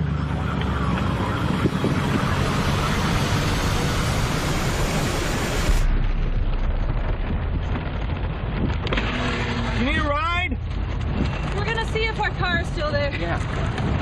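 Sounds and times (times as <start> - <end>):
low rumble: 0.0 - 14.0
loud rushing noise: 1.0 - 9.9.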